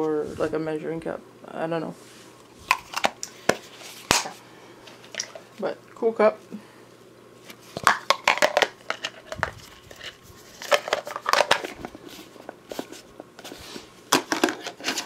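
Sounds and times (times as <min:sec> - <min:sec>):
plastic dishes clicking and clattering: 0:07.8 - 0:11.9, 0:14.1 - 0:15.0.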